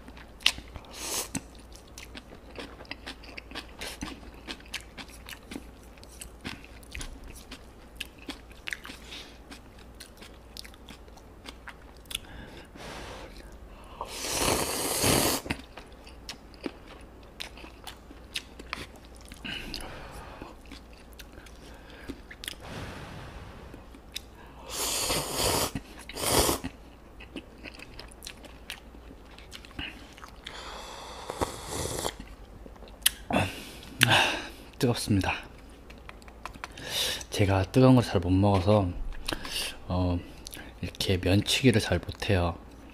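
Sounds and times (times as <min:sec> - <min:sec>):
wet chewing: 0:00.1 - 0:12.6, 0:15.5 - 0:22.6, 0:25.8 - 0:30.6
slurp of broth: 0:14.2 - 0:15.5, 0:31.3 - 0:32.2.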